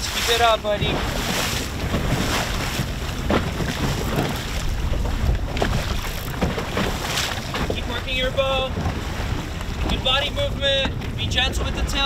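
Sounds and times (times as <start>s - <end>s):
water splashing against boat hull: 0.0s - 12.0s
wind buffeting microphone: 0.0s - 12.0s.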